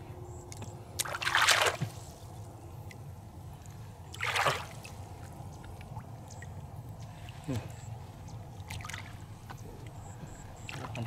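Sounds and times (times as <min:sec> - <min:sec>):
splashing in shallow water: 0:01.0 - 0:02.3, 0:04.1 - 0:11.0.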